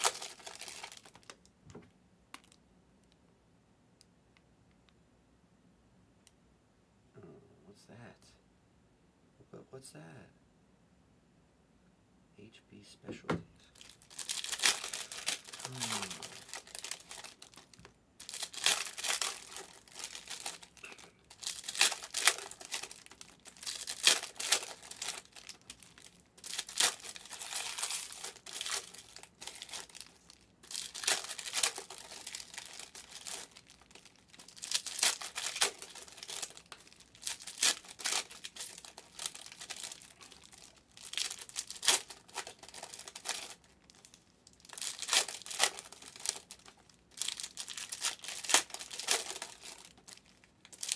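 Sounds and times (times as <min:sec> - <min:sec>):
foil wrappers tearing and crinkling: 0:00.0 - 0:01.4, 0:13.7 - 0:50.9.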